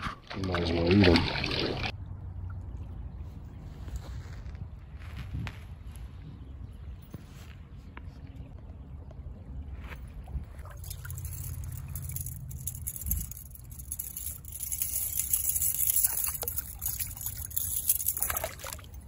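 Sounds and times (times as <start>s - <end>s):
water trickling and splashing: 0.0s - 3.6s, 10.2s - 19.0s
sharp water splashes: 0.3s - 1.9s, 14.7s - 19.0s.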